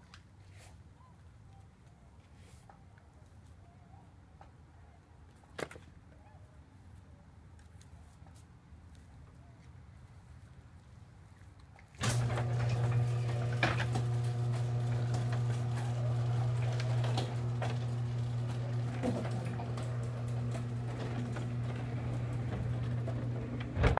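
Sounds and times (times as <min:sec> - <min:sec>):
garage door motor hum: 0:12.0 - 0:23.9
garage door rattling and clicking: 0:12.0 - 0:23.9.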